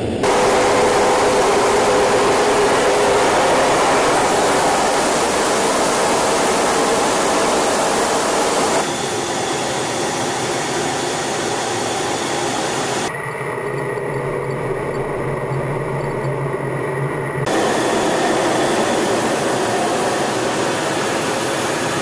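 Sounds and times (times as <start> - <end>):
faint hum: 0.0 - 9.7
jet roar in flight: 0.0 - 22.0.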